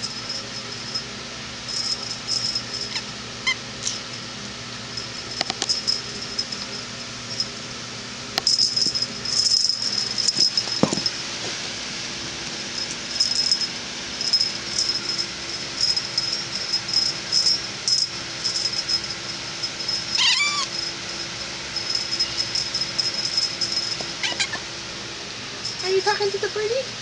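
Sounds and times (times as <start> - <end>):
high jingling rattle: 0.0 - 1.1, 1.7 - 4.3, 5.0 - 7.6, 8.4 - 11.3, 12.4 - 24.6, 25.6 - 26.8
kitten mewing: 20.2 - 20.7, 24.2 - 24.6.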